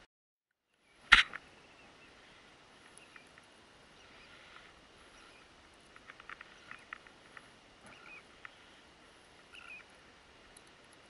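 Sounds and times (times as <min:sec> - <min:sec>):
faint steady hiss: 0:00.7 - 0:11.0
soft ticks: 0:05.7 - 0:08.6, 0:10.5 - 0:11.0.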